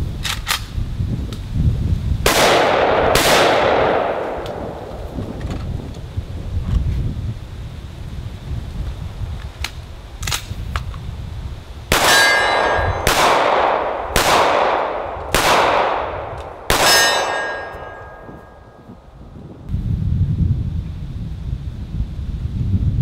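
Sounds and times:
pistol shots with echo: 2.3 - 4.9, 11.9 - 18.7
bullets ringing on steel: 11.9 - 13.4, 16.7 - 18.8.

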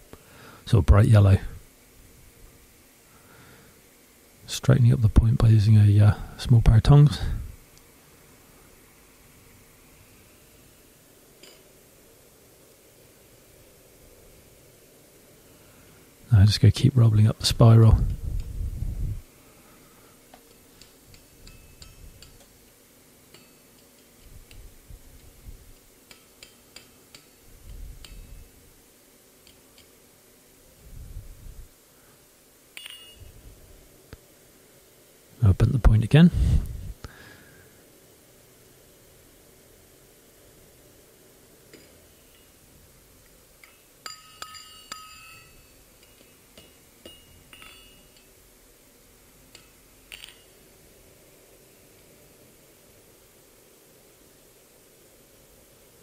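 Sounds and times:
hammer ringing on steel: 32.8 - 33.3, 44.0 - 45.8, 46.6 - 48.3.

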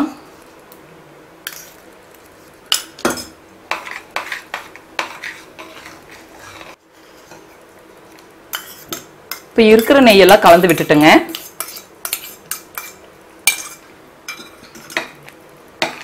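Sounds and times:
steel spoon scraping a steel pan: 3.7 - 7.4, 8.5 - 10.0, 10.7 - 15.0.

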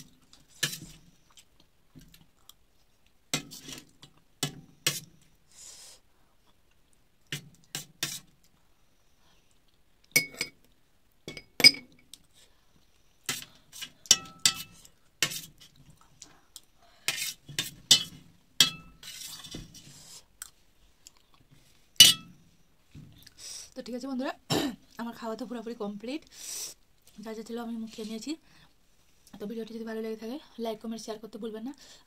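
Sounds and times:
metal spoon clinking on plate: 10.2 - 10.6, 14.1 - 14.8, 17.9 - 19.0, 22.0 - 22.3.

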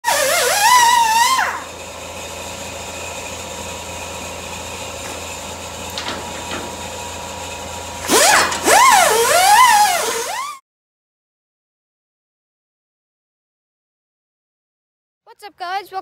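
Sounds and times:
air tool whirring and whining: 0.0 - 10.6.

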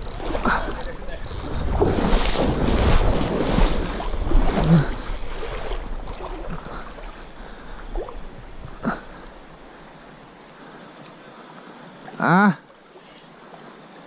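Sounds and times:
wind buffeting microphone: 0.0 - 9.7
stream water splashing: 0.0 - 14.0.

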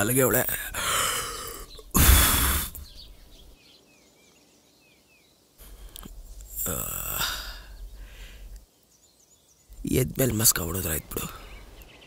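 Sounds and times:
loud burst of noise: 2.0 - 2.8.

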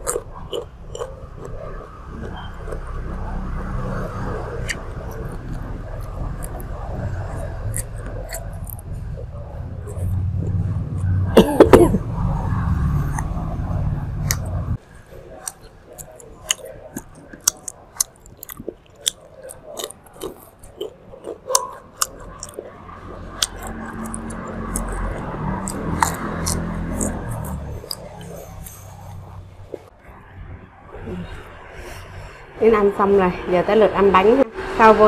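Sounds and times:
low hum: 0.0 - 15.4
chewing meat: 0.0 - 29.9.

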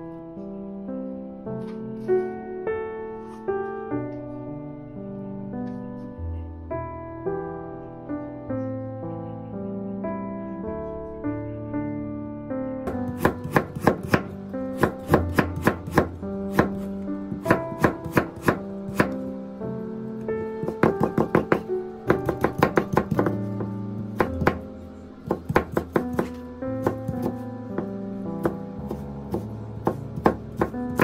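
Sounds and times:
soft background music: 0.0 - 31.0
knife chopping on wooden board: 12.9 - 19.2, 20.6 - 23.5, 24.2 - 24.6, 25.3 - 31.0.

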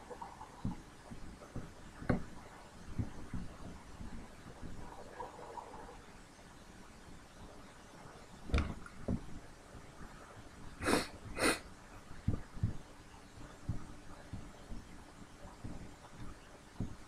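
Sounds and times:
soft low thumps: 0.0 - 5.9, 8.5 - 9.5, 12.2 - 17.0
short breaths: 10.8 - 11.6.

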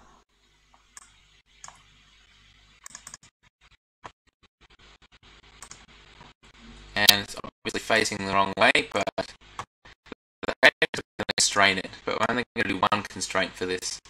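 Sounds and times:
computer mouse clicks: 2.8 - 3.3, 5.6 - 5.8.

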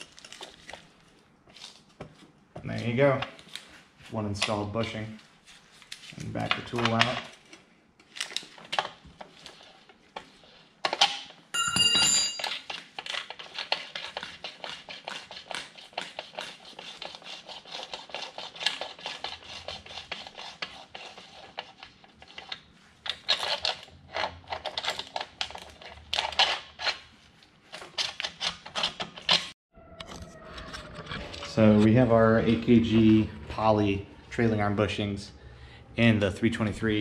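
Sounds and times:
metallic clank with ring: 11.6 - 12.5.

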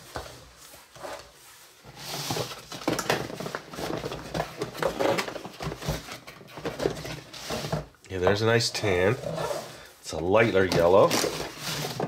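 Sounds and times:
plastic tubs clattering together: 1.9 - 8.0, 10.6 - 12.0.

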